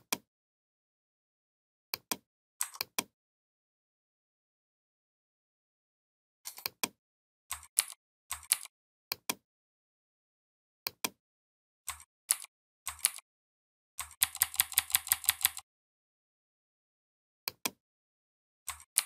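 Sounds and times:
mouse and keyboard clicks: 2.0 - 3.1, 6.5 - 9.4, 11.9 - 13.2, 14.0 - 15.6, 17.5 - 17.8, 18.7 - 19.0.

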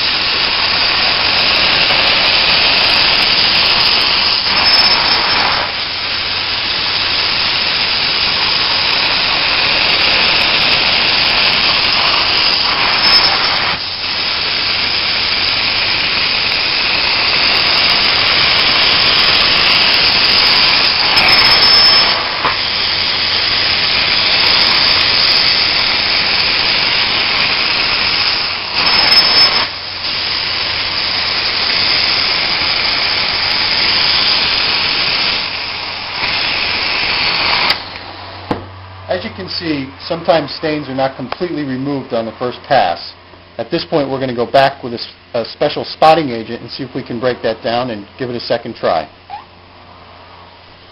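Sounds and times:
steam cleaner hissing spray: 0.0 - 38.4.

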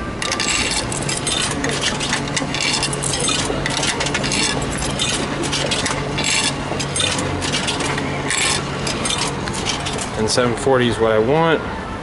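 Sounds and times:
steady low hum: 0.0 - 11.3
coins clinking into vending machine: 0.2 - 10.2.

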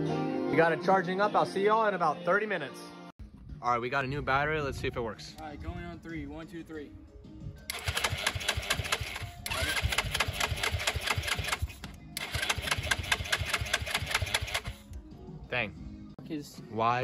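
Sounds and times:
engine cranking on electric starter: 7.7 - 15.0.

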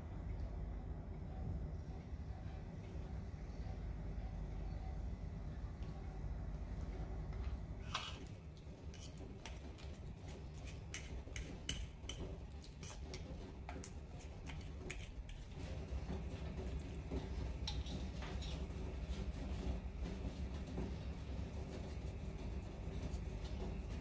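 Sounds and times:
steady low hum: 0.0 - 24.0
fork scraping ceramic plate: 8.9 - 13.2, 14.2 - 15.6.

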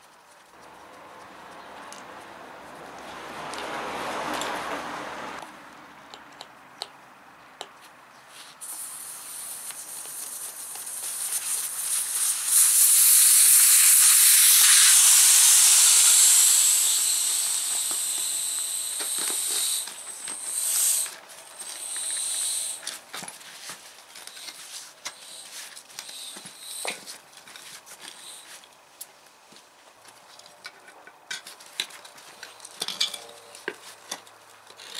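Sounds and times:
air hissing from tyre valve: 8.6 - 23.0, 24.4 - 27.1, 28.1 - 28.5.

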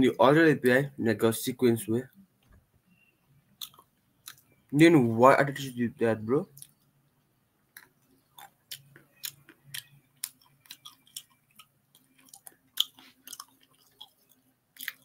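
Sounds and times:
fingernails being bitten: 7.8 - 15.0.

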